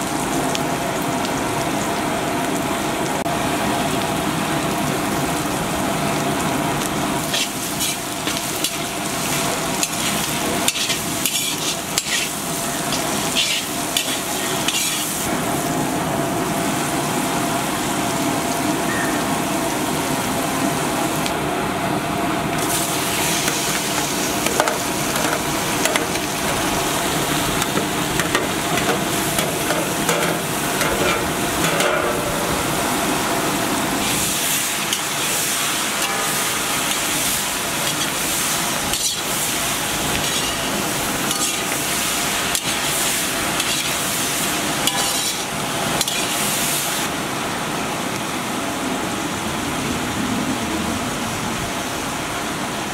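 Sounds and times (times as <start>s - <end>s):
vegetables sizzling in hot oil: 3.7s - 21.4s, 22.6s - 47.2s.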